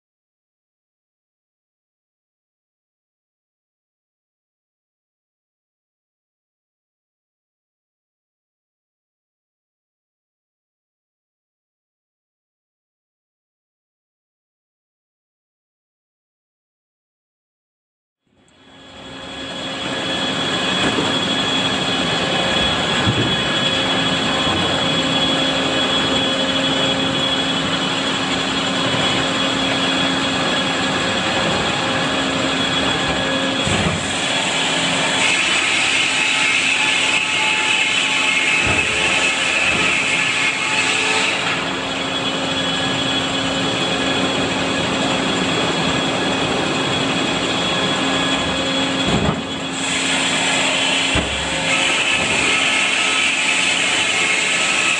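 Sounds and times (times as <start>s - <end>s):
circular saw blades humming: 18.5s - 54.9s
saw cutting a log: 19.6s - 44.1s, 47.5s - 54.9s.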